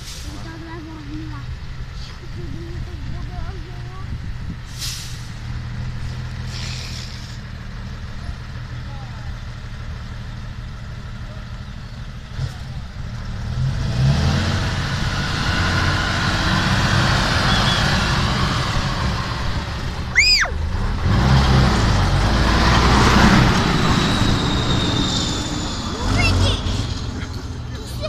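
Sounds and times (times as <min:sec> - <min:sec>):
diesel truck engine working hard: 0:00.0 - 0:28.0
brief high squeal: 0:23.7 - 0:26.0.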